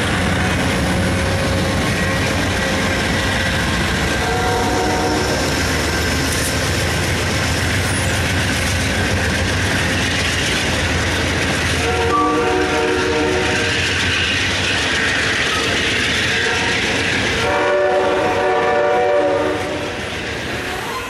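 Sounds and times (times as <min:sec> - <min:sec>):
train wheels clattering on rails: 0:00.0 - 0:21.0
train horn chord: 0:04.2 - 0:05.5, 0:11.8 - 0:13.8, 0:17.4 - 0:19.9.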